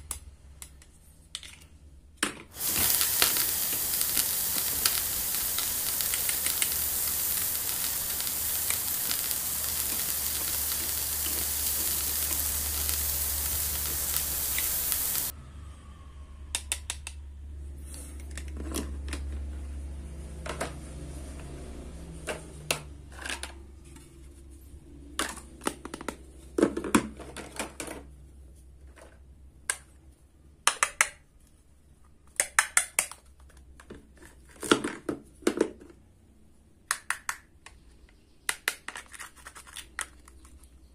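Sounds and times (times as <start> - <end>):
steady hiss: 2.5 - 15.3
plastic toy food clicking: 32.3 - 33.6, 36.9 - 37.8.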